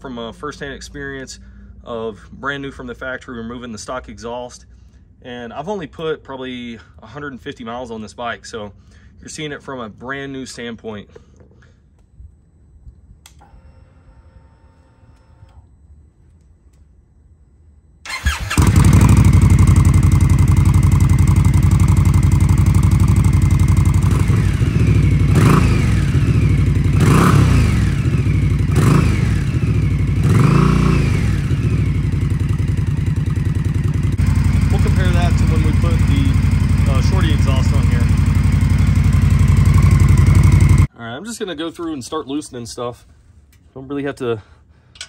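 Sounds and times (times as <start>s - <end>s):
motorcycle engine starting: 18.0s - 40.9s
motorcycle idling loudly: 18.1s - 40.9s
motorcycle revving: 18.1s - 40.9s.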